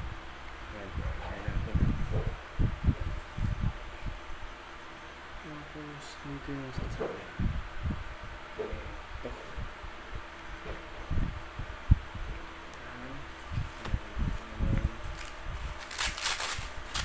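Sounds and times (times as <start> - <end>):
plastic packaging crinkling: 15.0 - 17.0.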